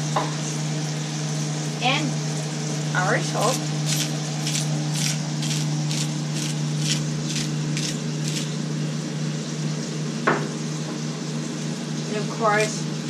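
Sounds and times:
steady low hum: 0.0 - 13.0
salt grinder milling: 1.8 - 9.8.

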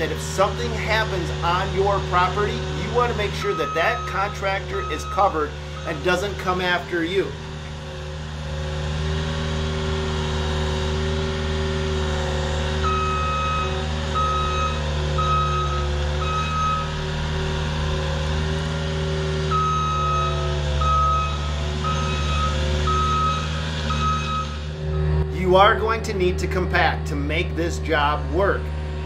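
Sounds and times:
diesel engine running: 0.0 - 29.0
backup alarm beeping: 3.2 - 6.5, 12.8 - 17.2, 19.5 - 25.3.

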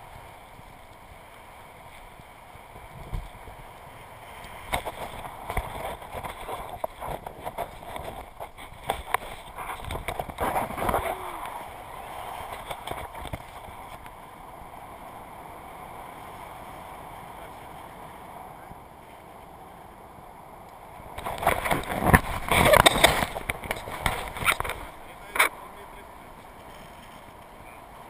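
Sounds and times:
wind buffeting microphone: 2.7 - 3.8, 4.6 - 14.4, 20.9 - 25.4.

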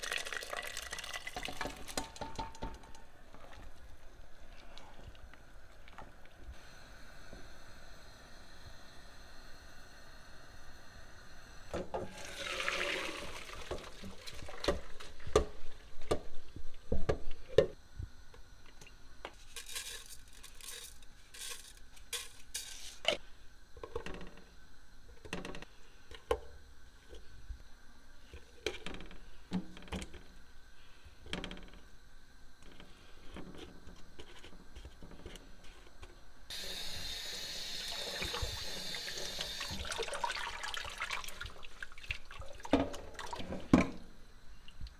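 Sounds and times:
kitchen tap running: 0.0 - 2.7, 11.8 - 16.2, 36.5 - 44.0
water gushing: 12.1 - 14.6, 36.5 - 43.6.

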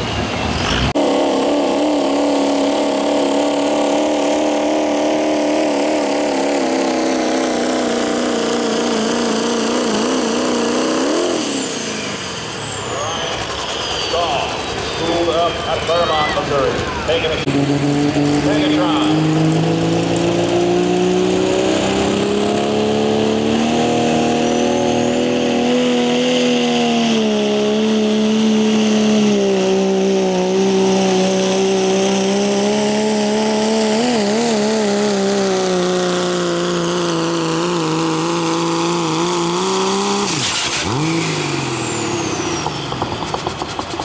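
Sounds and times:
diesel truck engine revving: 0.0 - 44.0
turbo whistle: 11.8 - 16.4.

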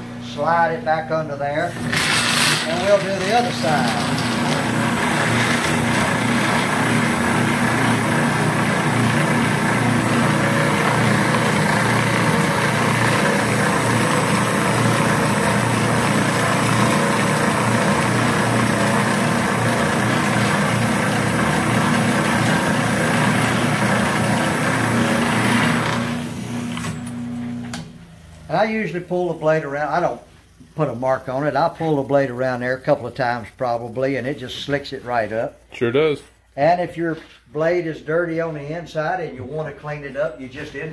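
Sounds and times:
electric motor hum: 1.5 - 33.0.

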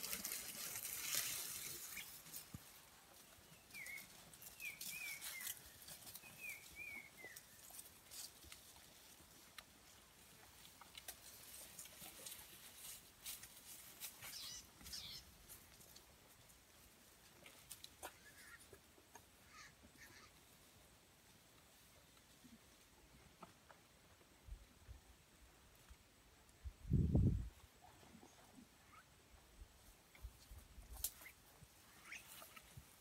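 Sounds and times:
bird chirping: 3.5 - 7.4, 14.2 - 15.3.

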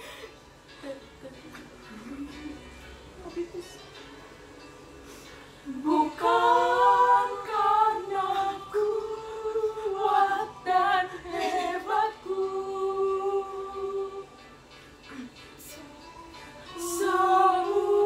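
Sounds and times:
girls singing a cappella: 5.6 - 18.0.

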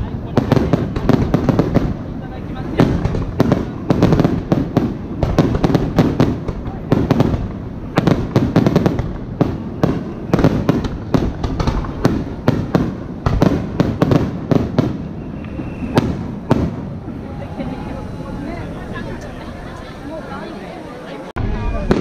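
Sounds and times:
firework shells bursting: 0.4 - 16.9.

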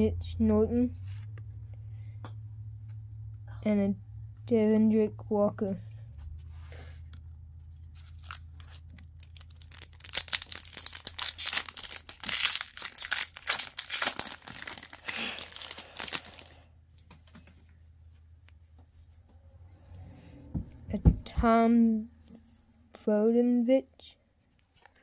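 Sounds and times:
foil wrapper tearing and crinkling: 7.9 - 16.7.

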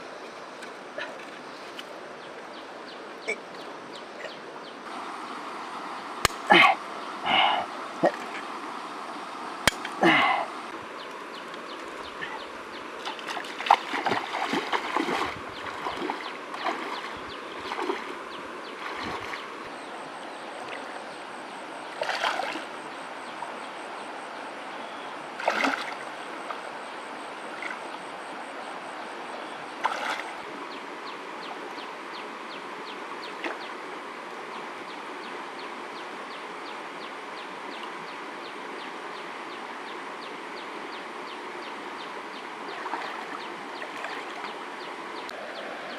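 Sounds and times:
shallow river flowing: 0.0 - 45.9
splashes from wading: 13.0 - 19.6, 21.9 - 22.8, 25.4 - 26.6, 29.8 - 30.4, 42.6 - 44.6.

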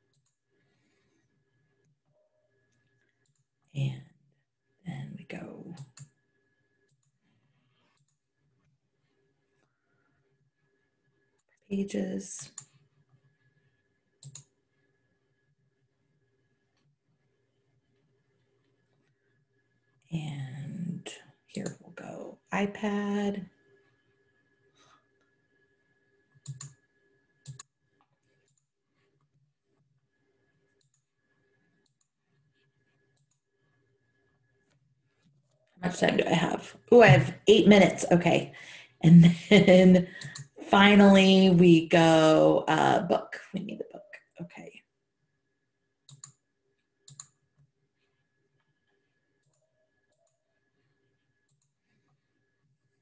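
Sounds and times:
faint steady hum: 0.0 - 53.0
computer mouse clicks: 5.8 - 6.2, 7.9 - 8.2, 14.2 - 14.5, 26.4 - 26.8, 27.4 - 27.7, 31.8 - 32.1, 40.1 - 40.6, 46.1 - 46.4, 47.0 - 47.4, 51.4 - 51.8.

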